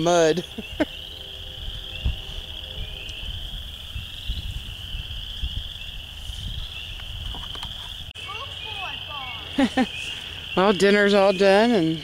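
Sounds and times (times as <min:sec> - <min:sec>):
low rumble: 0:00.0 - 0:07.2
frogs trilling chorus: 0:00.0 - 0:12.0.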